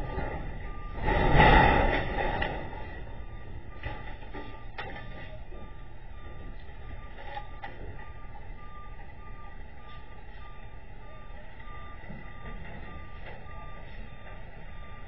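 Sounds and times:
low rumble: 0.0s - 4.7s
truck backup alarm beeping: 0.0s - 15.0s.

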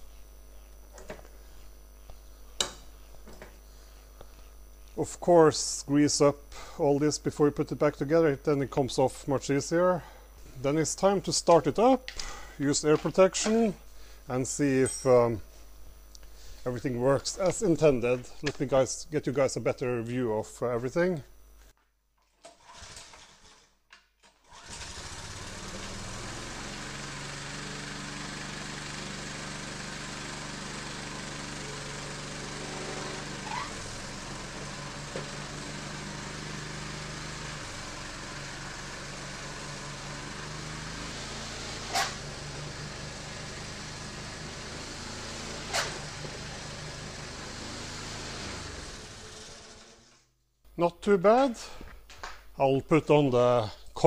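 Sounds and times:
snow thrower engine running: 24.5s - 50.2s.

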